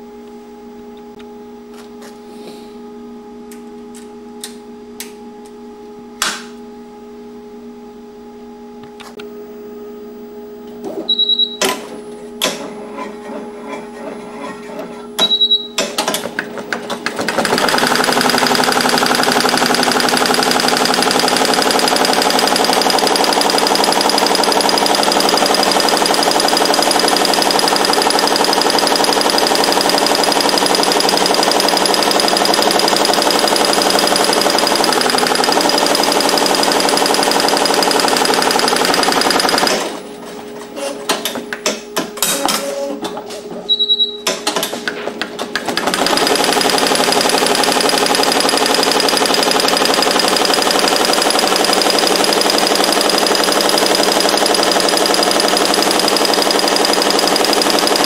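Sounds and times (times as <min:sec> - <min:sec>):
short high beep: 0:11.1 - 0:11.8, 0:15.2 - 0:15.8, 0:43.7 - 0:44.3
embroidery machine stitching: 0:15.9 - 0:40.0, 0:45.4 - 0:58.0.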